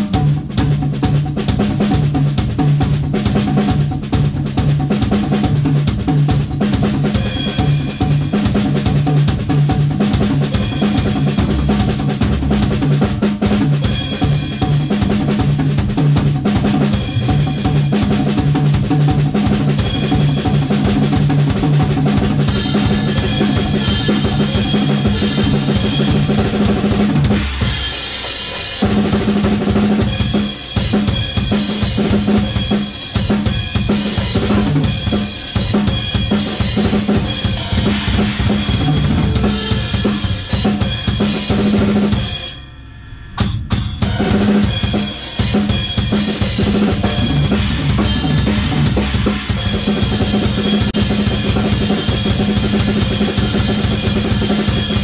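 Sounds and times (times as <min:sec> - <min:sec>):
drum kit: 0:00.0 - 0:55.0
rock band playing: 0:10.1 - 0:42.4, 0:43.5 - 0:55.0.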